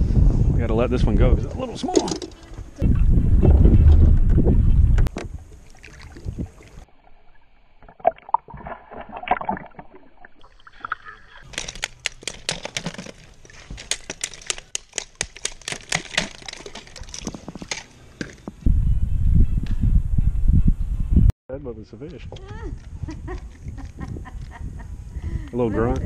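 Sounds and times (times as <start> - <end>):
river water sloshing and splashing: 5.4 - 7.0, 7.9 - 18.4
sharp splashes and drips: 5.6 - 6.9, 7.8 - 18.4.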